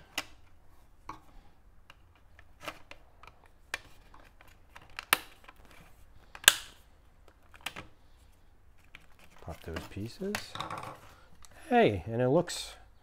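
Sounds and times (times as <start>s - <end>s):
sharp plastic snap: 6.3s - 6.8s.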